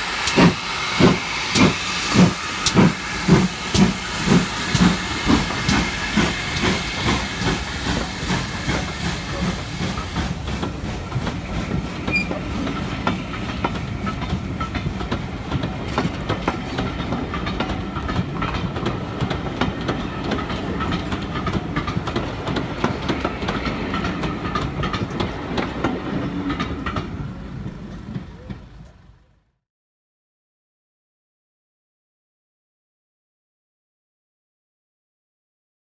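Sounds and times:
steam hissing: 0.0s - 18.4s
steam locomotive chuffing: 0.0s - 29.4s
train coaches rumbling: 0.0s - 29.5s
wheels clicking over rail joints: 8.7s - 29.4s.

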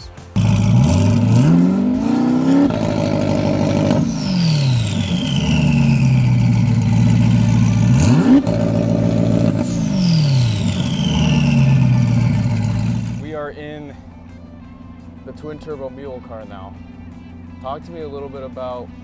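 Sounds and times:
car engine revving: 0.0s - 13.3s
turbo whistle: 2.1s - 13.2s.

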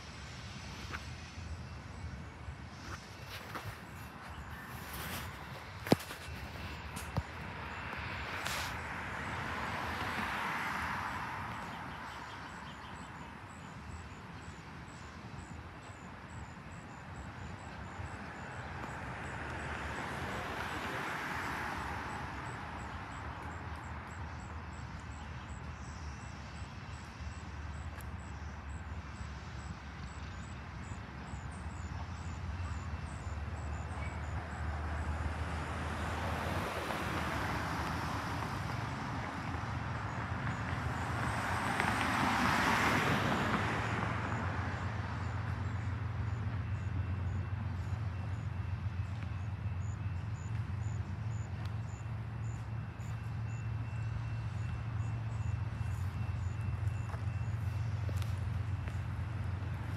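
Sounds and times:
vehicles passing with tyre noise: 0.0s - 59.9s.

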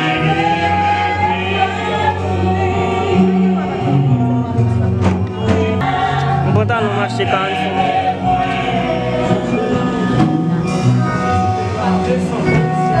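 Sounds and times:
choir singing a hymn: 0.0s - 4.8s, 5.4s - 10.9s
instrumental accompaniment: 0.0s - 13.0s.

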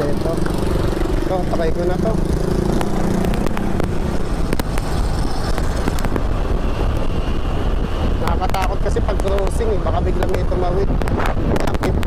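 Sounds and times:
road noise: 0.0s - 12.0s
wind rush on microphone: 0.0s - 12.0s
sharp clicks: 2.7s - 6.2s.

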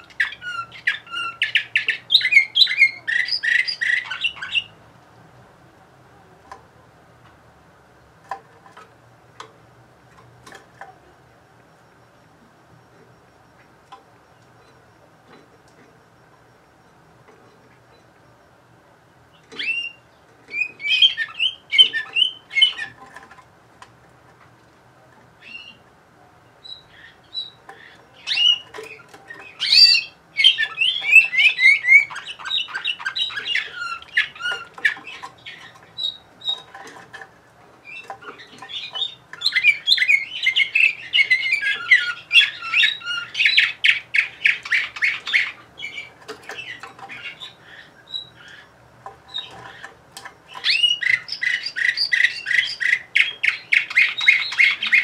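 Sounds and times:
canary chirping and trilling: 0.0s - 4.9s, 19.3s - 23.5s, 25.2s - 55.0s.

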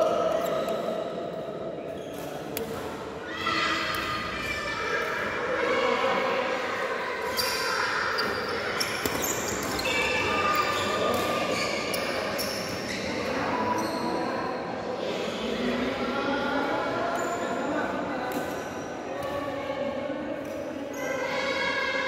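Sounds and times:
voices in hall: 0.0s - 22.0s
shoes squeaking on court: 7.3s - 14.2s.

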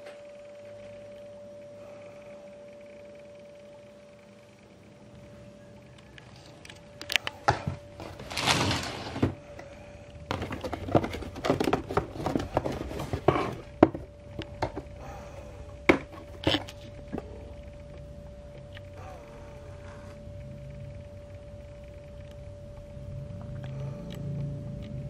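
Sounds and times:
faint steady hum: 0.0s - 25.0s
drawer scraping open: 8.0s - 9.4s
cardboard box rustling and knocking: 10.3s - 14.9s.

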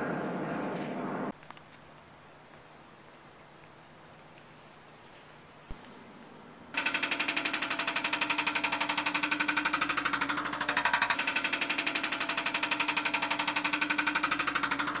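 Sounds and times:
engine and hydraulics humming: 5.6s - 15.0s
hydraulic breaker hammering concrete: 6.8s - 15.0s.

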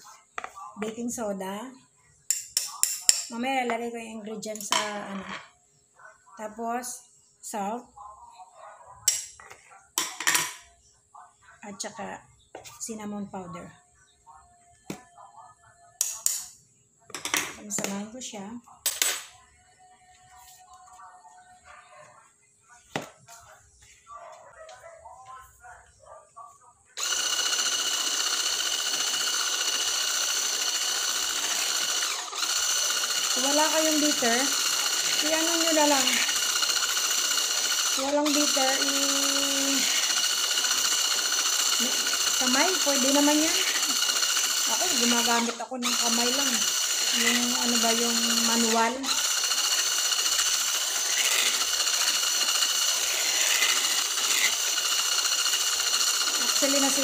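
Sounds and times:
electric hand mixer whining: 27.0s - 57.0s.

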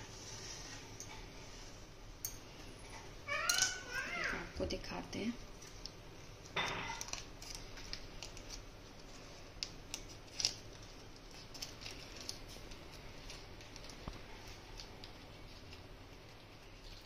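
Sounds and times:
paper cupcake liner crinkling: 5.4s - 17.0s.

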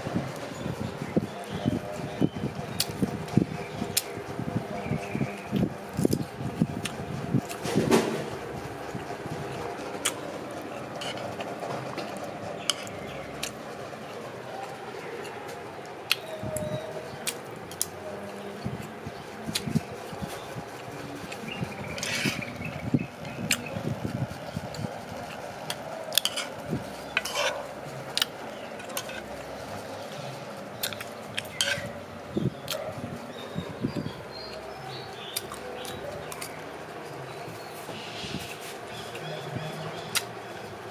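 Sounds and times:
metal spoon scraping a tray: 11.0s - 11.4s, 21.9s - 22.5s, 26.2s - 27.6s, 28.8s - 29.2s, 31.4s - 32.0s.

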